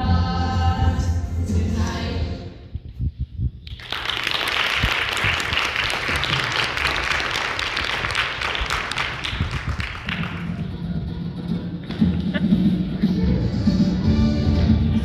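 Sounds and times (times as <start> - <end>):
audience applauding: 3.7 - 11.1.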